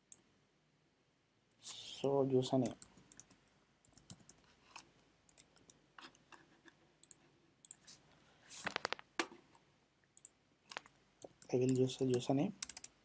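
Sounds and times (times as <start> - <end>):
faint keyboard typing: 2.5 - 9.4, 10.2 - 13.0.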